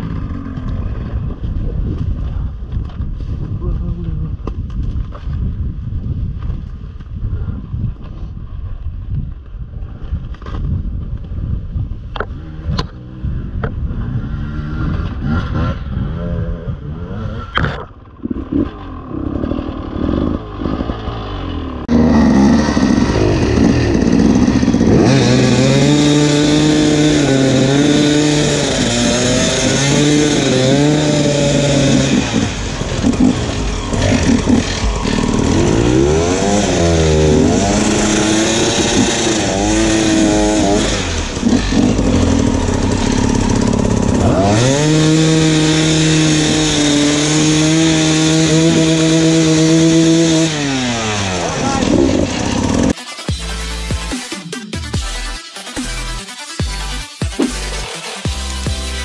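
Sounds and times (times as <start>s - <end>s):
dirt bike engine revving: 0.0s - 1.3s, 12.3s - 53.0s.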